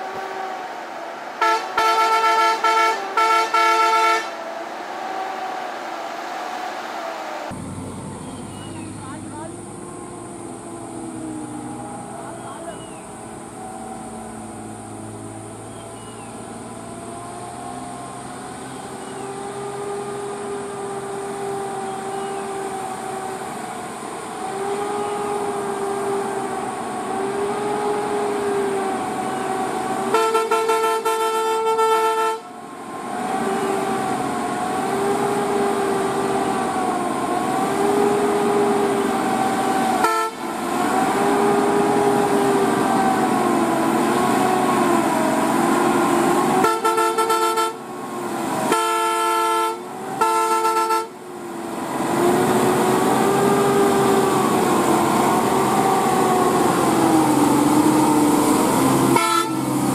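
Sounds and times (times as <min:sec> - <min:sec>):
lorry diesel engine whining: 0:00.0 - 0:59.9
lorry horn blast: 0:01.4 - 0:04.4, 0:30.1 - 0:32.4, 0:40.0 - 0:40.5, 0:46.6 - 0:47.8, 0:59.1 - 0:59.7.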